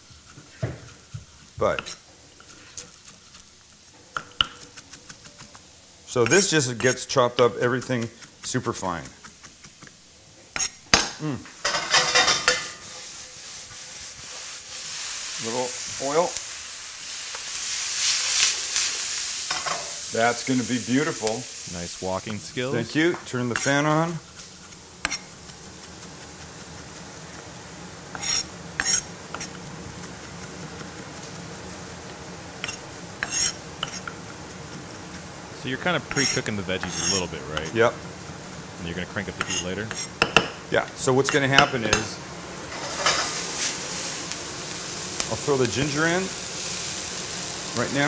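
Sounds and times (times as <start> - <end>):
food sizzling in a pan: 0.0 - 48.0
utensil clattering in a pan: 11.6 - 13.1
utensil scraping a pan: 11.6 - 16.2, 22.3 - 31.6, 32.6 - 37.9, 39.4 - 40.2, 42.7 - 44.1.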